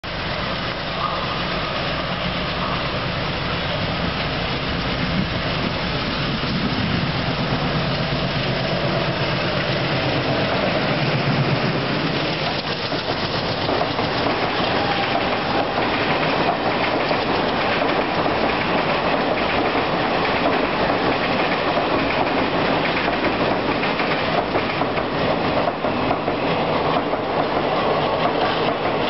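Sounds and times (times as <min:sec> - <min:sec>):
diesel locomotive engine drone: 0:00.0 - 0:29.0.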